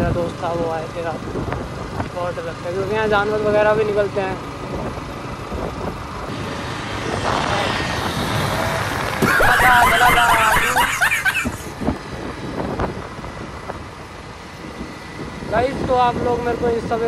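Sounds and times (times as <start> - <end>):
motorcycle running: 0.0 - 17.0
wind on microphone: 4.7 - 9.6, 11.3 - 17.0.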